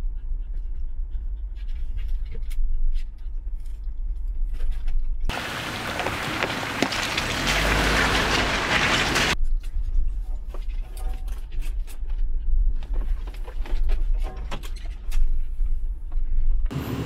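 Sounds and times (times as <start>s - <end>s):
tyres rolling over gravel: 5.3s - 9.4s
vehicle rumble inside cab: 5.3s - 9.4s, 11.8s - 17.0s.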